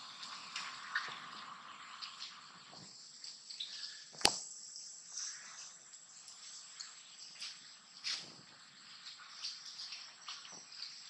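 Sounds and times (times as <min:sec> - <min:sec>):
sharp click: 0:04.2 - 0:04.4.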